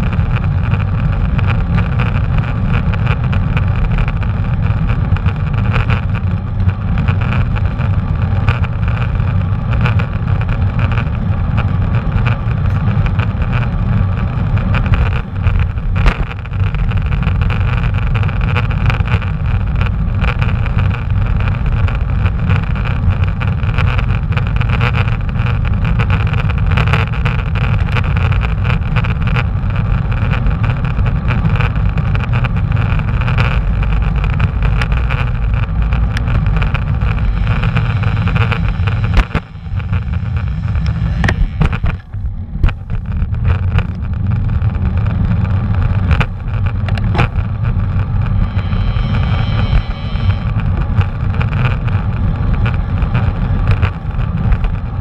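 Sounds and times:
bicycle tyre and road noise: 0.0s - 55.0s
wind buffeting microphone: 29.6s - 55.0s.

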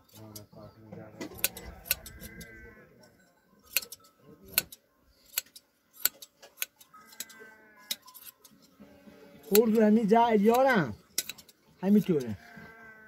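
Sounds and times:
hand shears snipping fleece: 3.7s - 8.7s, 9.4s - 12.4s.

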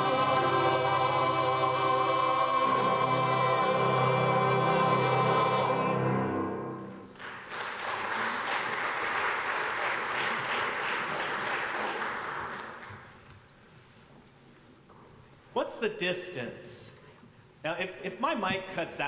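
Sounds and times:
church choir singing: 0.0s - 7.1s
congregation applauding: 7.0s - 13.3s.

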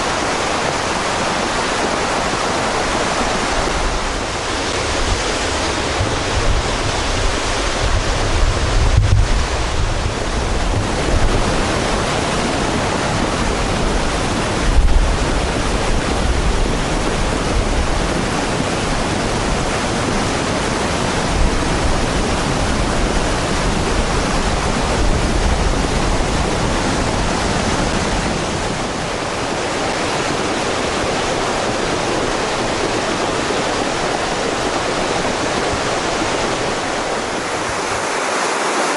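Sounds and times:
stream rushing over rocks: 0.0s - 38.9s.

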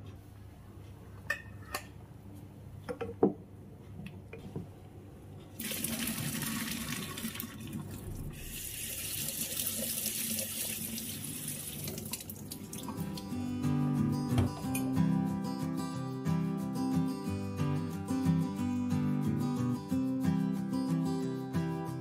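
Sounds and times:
water poured through strainer into sink: 5.6s - 13.0s.

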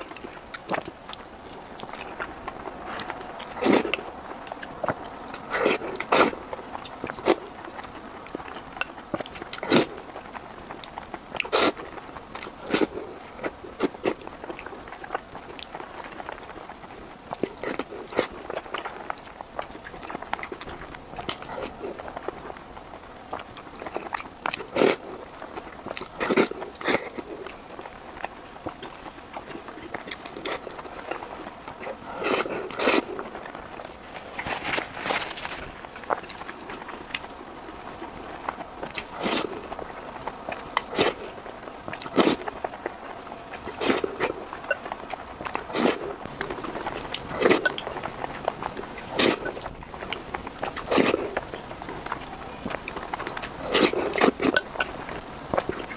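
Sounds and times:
wet chewing and smacking: 0.0s - 55.9s
wet slurping: 0.2s - 7.9s, 9.2s - 10.2s, 11.4s - 16.3s, 23.8s - 27.9s, 28.7s - 37.2s, 38.4s - 55.9s.

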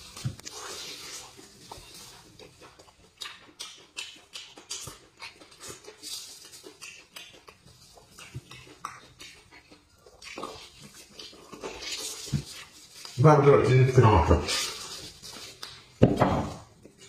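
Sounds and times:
wet sucking and slurping: 0.0s - 2.6s.

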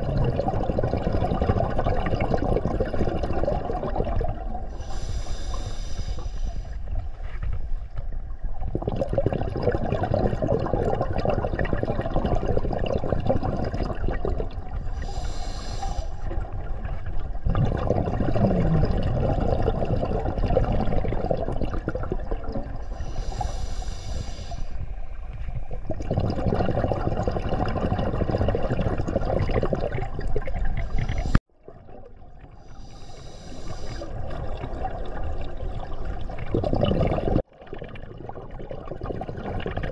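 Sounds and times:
exhaled bubbles rushing: 0.0s - 4.8s, 8.3s - 15.2s, 16.2s - 23.0s, 25.4s - 32.7s, 33.8s - 39.9s
diver breathing through regulator: 4.7s - 6.9s, 14.9s - 16.3s, 22.8s - 25.2s, 30.8s - 31.5s, 32.6s - 34.4s.

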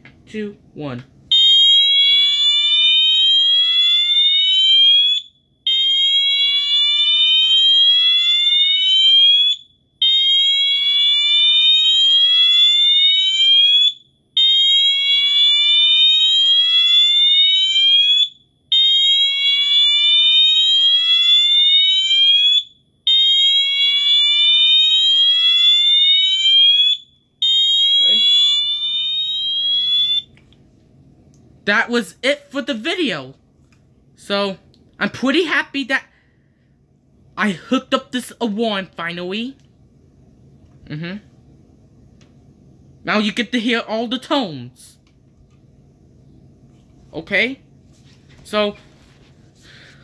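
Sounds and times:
fire alarm whooping: 1.3s - 30.3s.

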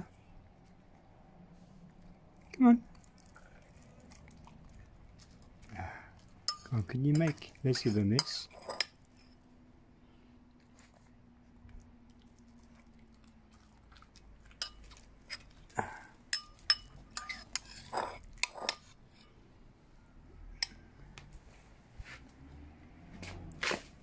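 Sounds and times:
metal spoon clinking against bowl: 6.4s - 9.4s, 14.6s - 15.4s, 16.3s - 18.9s.

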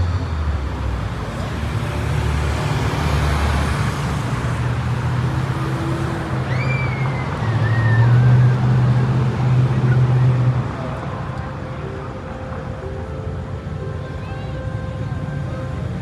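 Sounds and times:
road traffic: 0.0s - 16.0s.

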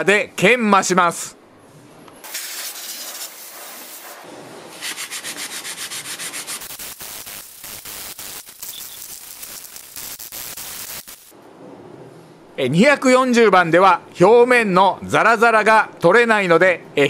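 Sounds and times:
water spray hissing on metal: 2.3s - 4.2s, 6.5s - 11.3s
sandpaper wet-sanding aluminium: 2.3s - 11.3s.

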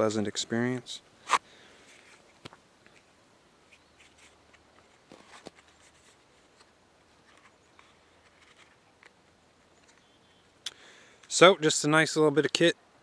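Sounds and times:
rustling and small clicks: 3.7s - 10.1s.

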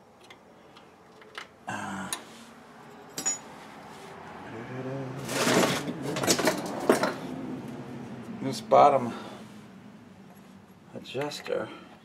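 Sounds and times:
metal parts clattering: 2.9s - 3.5s, 5.2s - 7.2s
metal parts clinking and rattling: 2.9s - 3.5s, 5.2s - 7.2s.

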